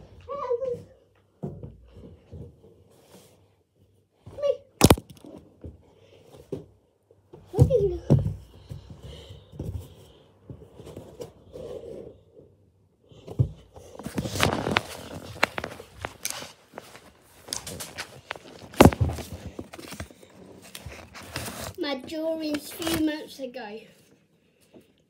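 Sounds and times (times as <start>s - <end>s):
hands rubbing and tapping phone: 14.0s - 21.6s.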